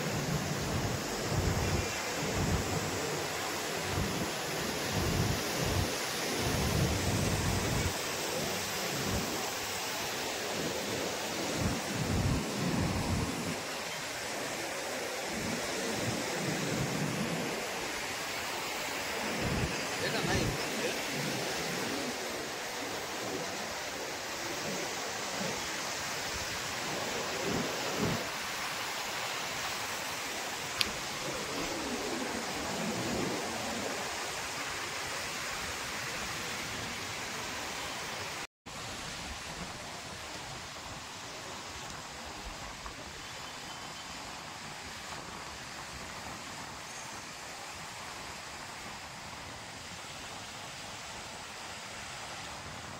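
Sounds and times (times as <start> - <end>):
wind buffeting microphone: 0.0 - 9.5, 19.1 - 23.6
surf breaking on beach: 0.0 - 25.7, 26.3 - 35.0.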